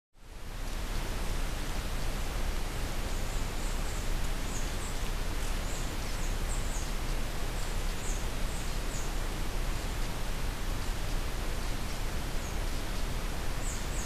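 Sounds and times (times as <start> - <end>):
microphone hiss: 0.2 - 14.0
small bird chirping: 3.1 - 14.0.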